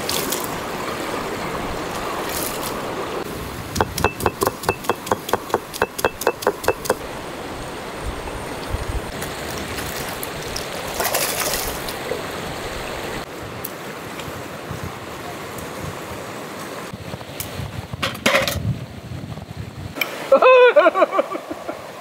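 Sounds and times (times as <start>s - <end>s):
sharp knocks: 3.8s - 7.0s.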